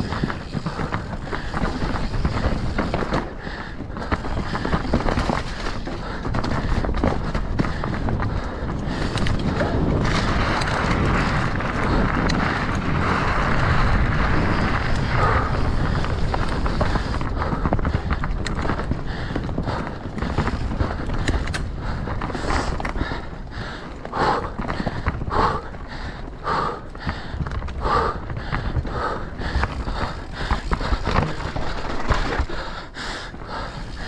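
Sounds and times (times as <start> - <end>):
bike tyres on dirt and rock: 0.0 - 34.0.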